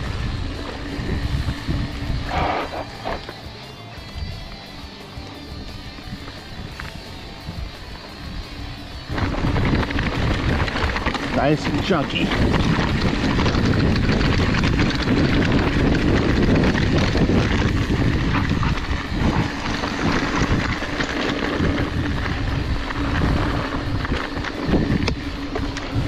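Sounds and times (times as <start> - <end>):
wind buffeting microphone: 0.0 - 3.2, 5.5 - 26.0
bike rattling: 0.0 - 26.0
tyres crunching over rocks: 8.7 - 26.0.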